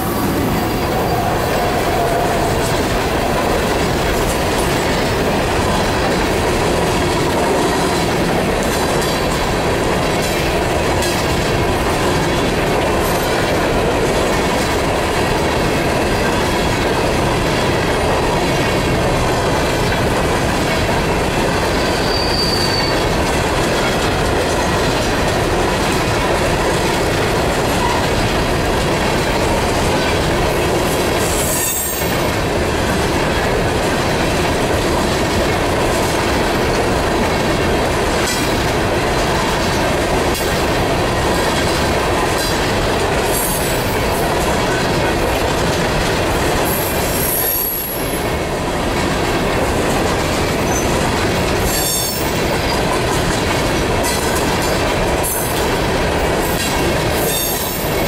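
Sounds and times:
train wheels rumbling and rattling: 0.0 - 58.0
high wheel squeal: 21.7 - 23.1.

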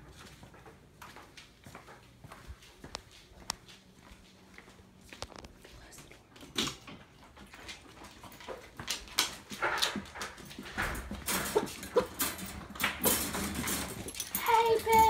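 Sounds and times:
dogs whimpering and yipping: 11.5 - 12.3.

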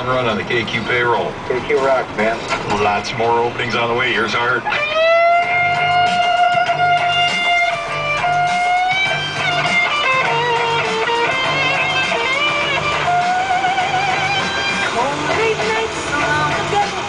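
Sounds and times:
rock music on a radio: 0.0 - 17.0
electric guitar bending notes: 1.2 - 17.0.

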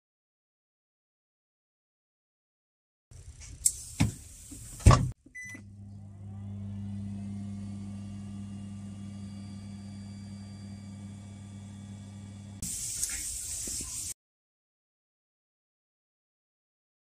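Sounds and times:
oven humming: 4.0 - 12.6
short beep: 5.4 - 5.6.

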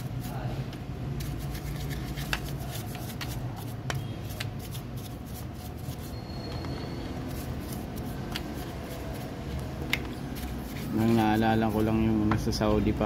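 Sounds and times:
brush scrubbing metal: 0.0 - 0.5, 1.2 - 6.1, 10.3 - 12.0.

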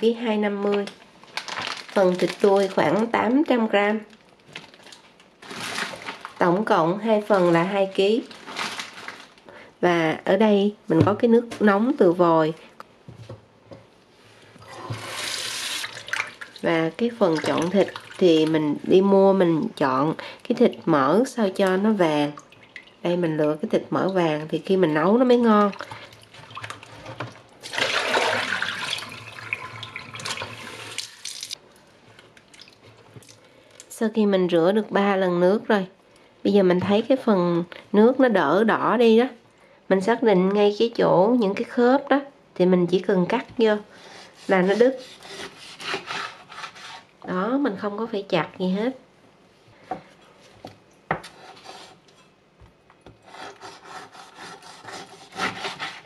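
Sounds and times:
knife sawing through bone: 44.1 - 47.0, 53.2 - 56.0.

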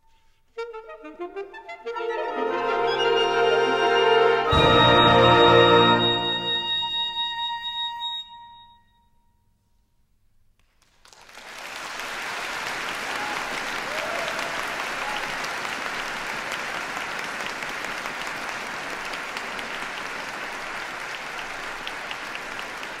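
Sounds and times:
music: 0.0 - 9.4
audience applauding: 10.8 - 23.0.

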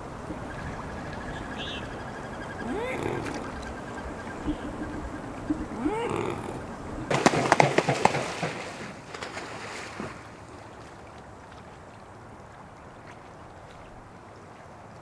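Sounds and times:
gentle water lapping: 0.0 - 15.0
short rising bird call: 5.6 - 6.8
swan wings splashing water: 7.1 - 15.0.

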